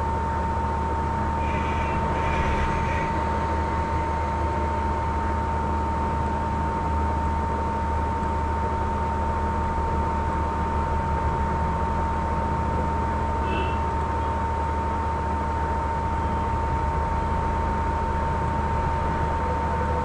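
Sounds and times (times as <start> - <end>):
constant high-pitched tone: 0.6 - 7.1
low hum: 0.8 - 8.2.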